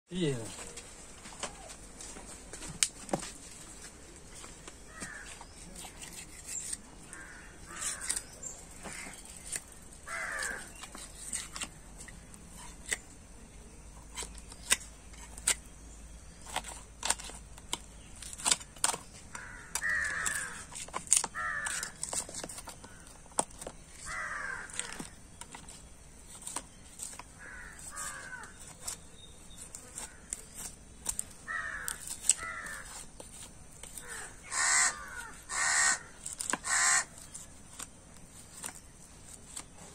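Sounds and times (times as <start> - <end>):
crows cawing: 4.8 - 5.5, 7.0 - 9.2, 10.0 - 10.8, 19.3 - 22.2, 22.8 - 23.2, 24.0 - 25.2, 27.3 - 28.6, 31.4 - 33.0, 33.9 - 37.3.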